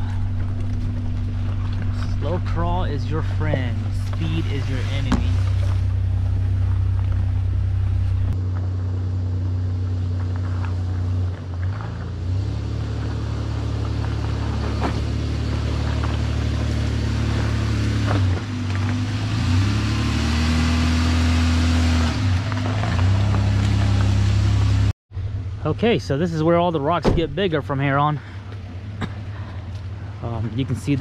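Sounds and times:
rocks clicking under tyres: 0.0 - 4.3, 4.9 - 19.1
truck engine at low throttle: 0.0 - 31.0.

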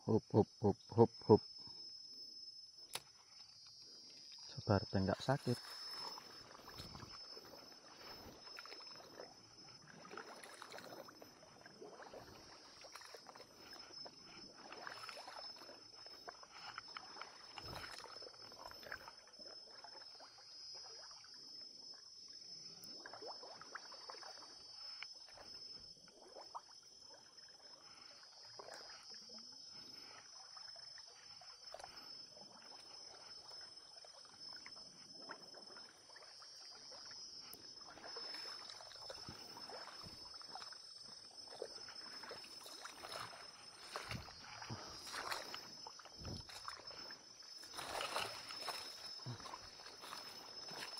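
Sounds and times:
water sloshing: 5.2 - 19.8, 37.8 - 50.9.

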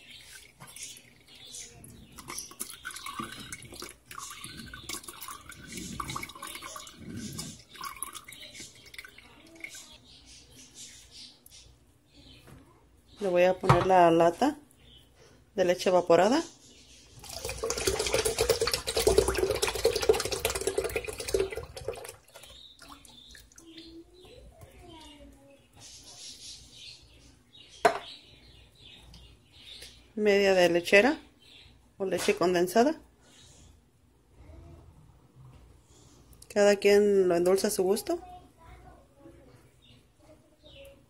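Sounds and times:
liquid pouring through a strainer: 2.1 - 9.8, 17.2 - 23.6
splashing and dripping: 2.2 - 9.9, 17.2 - 23.8.

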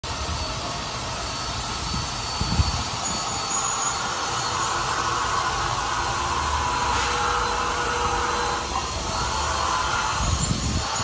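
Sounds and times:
diesel generator droning: 0.0 - 11.0
wind buffeting microphone: 1.8 - 3.3, 10.0 - 11.0.

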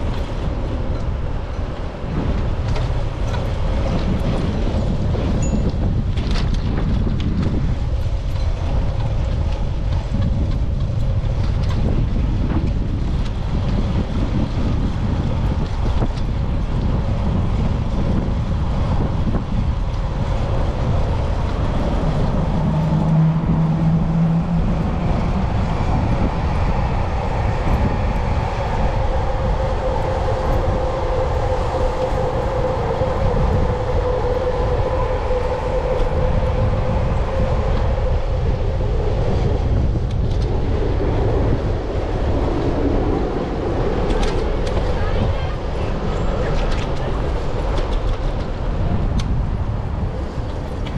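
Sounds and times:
bicycle rolling on pavement: 0.0 - 34.0, 34.7 - 50.9
wind buffeting microphone: 0.0 - 50.9
steady hum: 18.5 - 48.8.

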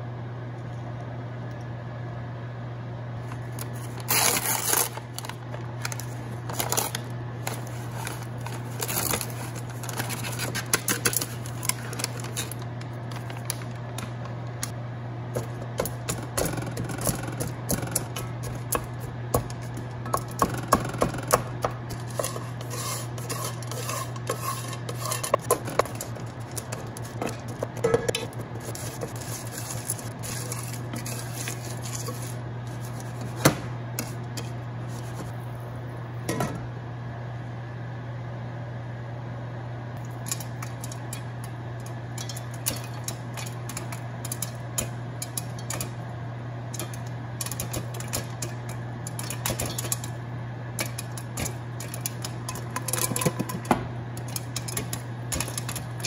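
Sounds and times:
steady low hum: 0.0 - 56.0
kernels rattling: 21.9 - 32.4
wooden spatula scraping pot: 21.9 - 33.4.

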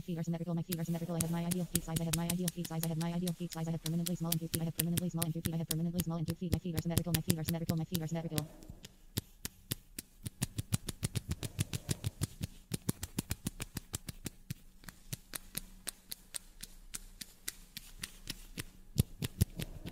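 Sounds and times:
faint low hum: 0.0 - 9.1
rapid sharp clicks and taps: 0.0 - 19.9.

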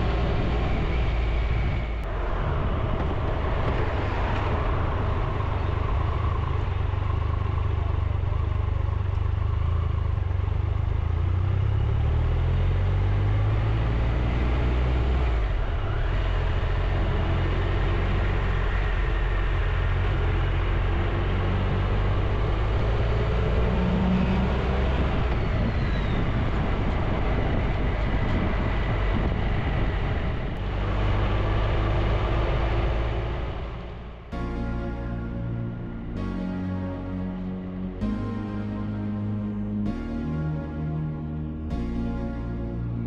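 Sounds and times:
wind rush: 0.0 - 6.2, 25.0 - 31.4.

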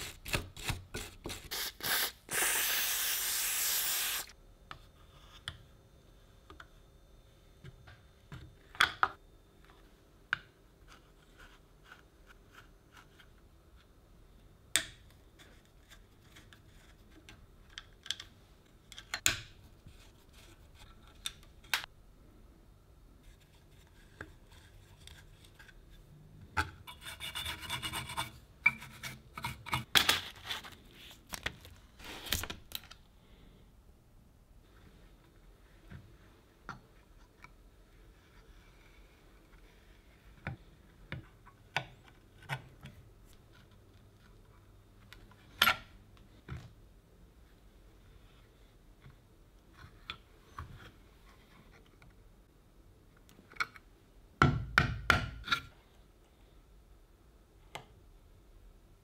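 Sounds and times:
screwdriver working at a screw: 0.0 - 4.3
aerosol spray hiss: 1.5 - 4.3.

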